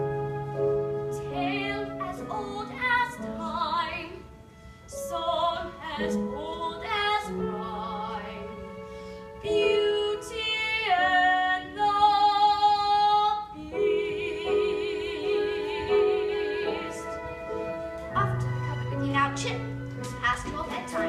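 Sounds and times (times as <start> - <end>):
musical accompaniment: 0.0 - 21.0
woman singing with vibrato: 1.1 - 4.3, 9.4 - 21.0.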